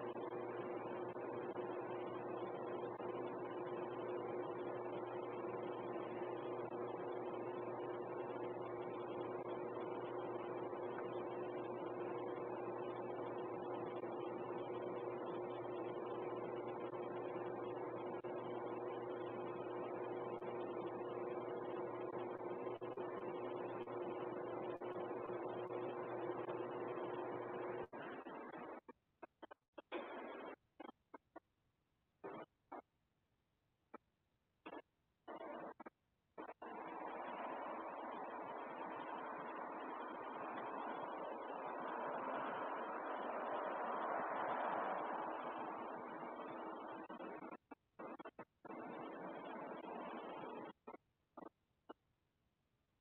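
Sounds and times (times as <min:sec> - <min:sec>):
steady hum: 0:00.0 - 0:31.2, 0:34.6 - 0:51.5.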